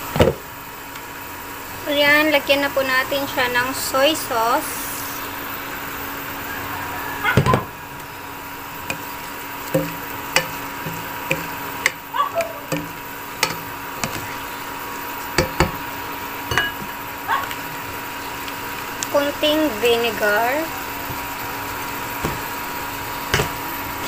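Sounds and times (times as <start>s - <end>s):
steady hum: 0.0s - 24.0s
spatula scraping pot: 8.6s - 14.7s.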